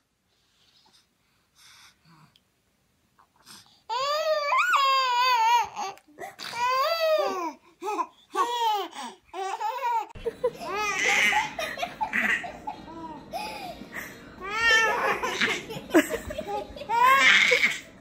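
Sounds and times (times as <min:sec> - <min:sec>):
toddler wailing: 0:03.9 - 0:07.5, 0:14.4 - 0:15.7, 0:16.9 - 0:17.8
baby laughing and babbling: 0:03.9 - 0:18.0
girl laughing: 0:10.1 - 0:17.9.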